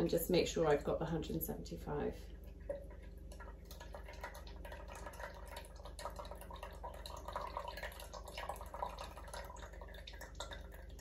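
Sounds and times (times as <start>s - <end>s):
melted butter dripping into saucepan: 2.4s - 11.0s.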